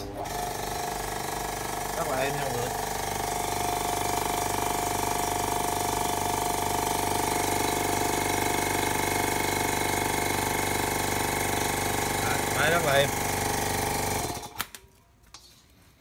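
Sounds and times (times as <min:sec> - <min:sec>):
air compressor humming: 0:00.0 - 0:14.6.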